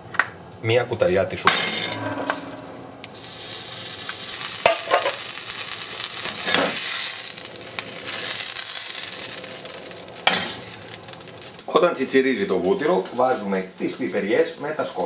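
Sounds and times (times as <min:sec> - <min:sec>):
butter sizzling in a frying pan: 0:03.0 - 0:15.0.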